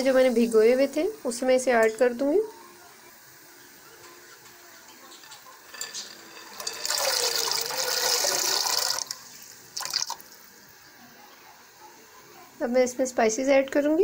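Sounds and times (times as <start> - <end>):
chickpeas poured into water: 5.8 - 10.2.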